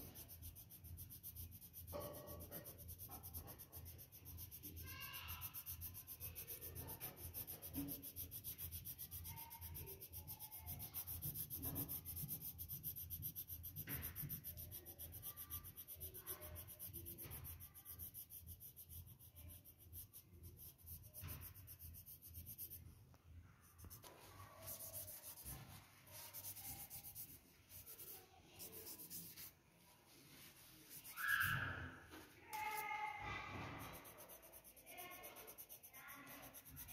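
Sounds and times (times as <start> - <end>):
hand rubbing paper: 0.0 - 23.0, 23.6 - 36.9
pencil shading on paper: 0.0 - 36.9.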